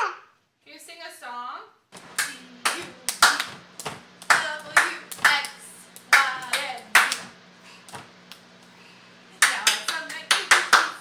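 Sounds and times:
baby voice sounds: 0:00.0 - 0:00.4
baby clapping hands: 0:02.1 - 0:07.3, 0:09.4 - 0:11.0.

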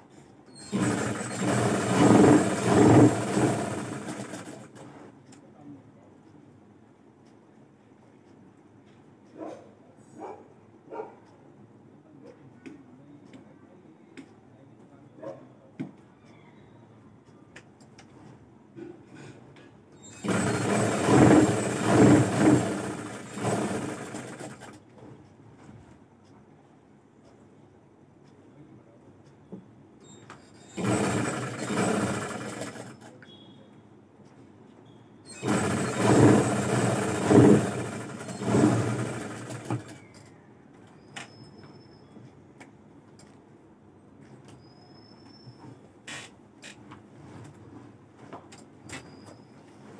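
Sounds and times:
sewing machine running: 0:00.6 - 0:04.8, 0:20.1 - 0:24.8, 0:30.7 - 0:33.2, 0:35.3 - 0:40.0.

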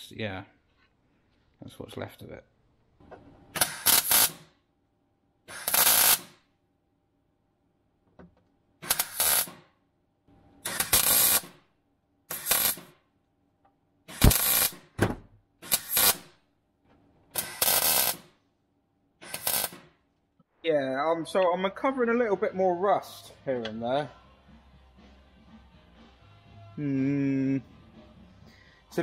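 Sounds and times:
welder arc crackle: 0:03.6 - 0:04.5, 0:05.5 - 0:06.4, 0:08.8 - 0:09.6, 0:10.6 - 0:11.6, 0:12.3 - 0:13.0, 0:14.1 - 0:14.8, 0:15.7 - 0:16.3, 0:17.4 - 0:18.3, 0:19.3 - 0:19.9.

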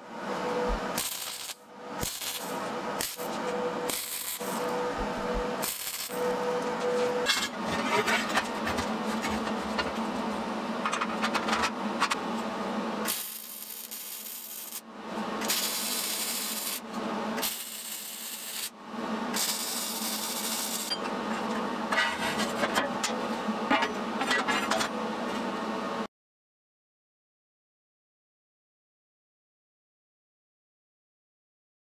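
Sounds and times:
welder arc crackling and hissing: 0:00.4 - 0:07.1, 0:13.0 - 0:20.9.

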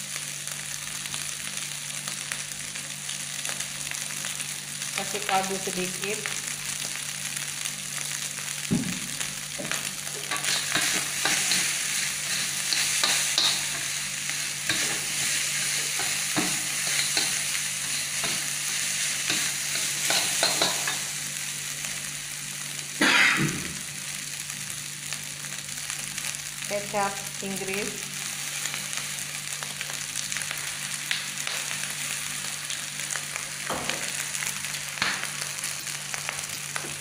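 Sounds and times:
frying sizzle: 0:00.0 - 0:37.0
metal spatula scraping a wok: 0:10.2 - 0:13.9.

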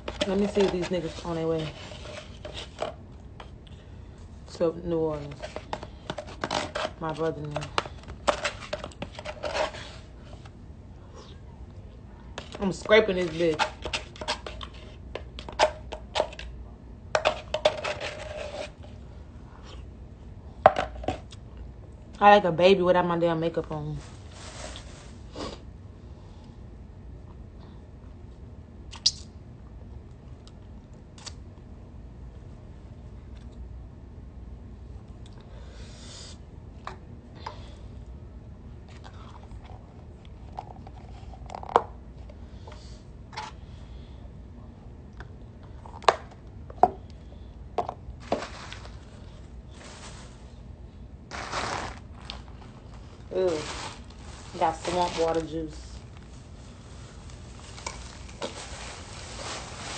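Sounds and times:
scraping food container: 0:00.0 - 0:03.6, 0:05.2 - 0:10.4, 0:12.4 - 0:16.5, 0:17.2 - 0:18.9.

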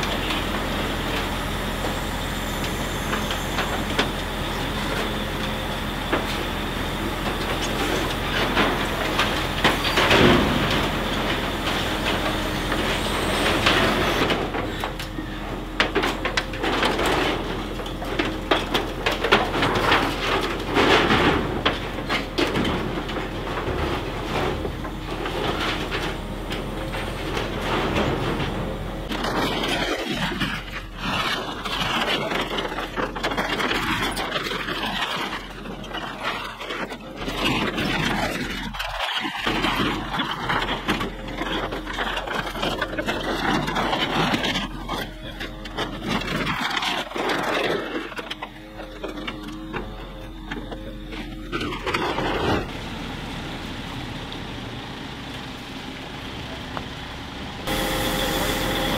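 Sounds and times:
truck engine humming: 0:00.0 - 0:58.9
sheet metal clanking and scraping: 0:07.2 - 0:52.7.

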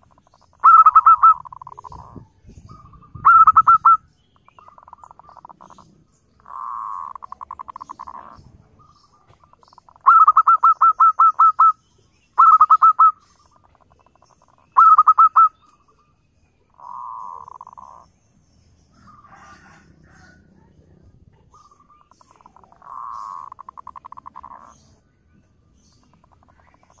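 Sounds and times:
dove staccato coos: 0:00.0 - 0:02.2, 0:04.6 - 0:11.7, 0:21.3 - 0:24.9
dove purring trill: 0:00.0 - 0:16.0, 0:16.7 - 0:18.2, 0:21.3 - 0:25.0.

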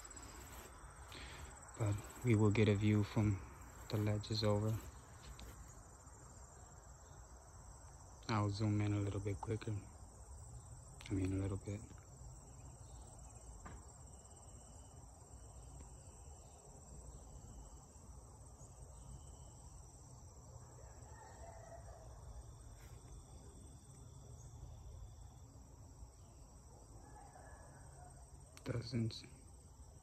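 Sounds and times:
crickets chirping: 0:00.0 - 0:30.0.

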